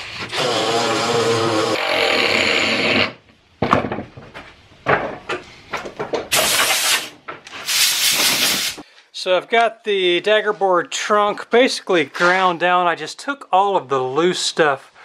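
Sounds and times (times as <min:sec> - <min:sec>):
knocks and rustles: 0:03.6 - 0:08.8
burst of hiss: 0:06.3 - 0:08.9.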